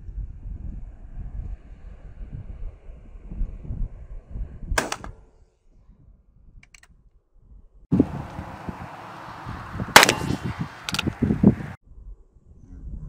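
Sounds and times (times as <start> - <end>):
wind buffeting microphone: 0.0 - 13.0
revolver gunshot: 4.8 - 5.2, 10.0 - 11.0.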